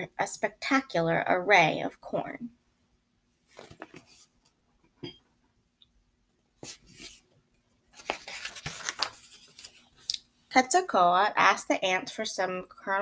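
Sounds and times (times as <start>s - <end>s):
paper page rustling and scraping: 3.5s - 4.4s, 6.6s - 7.2s, 7.9s - 10.1s.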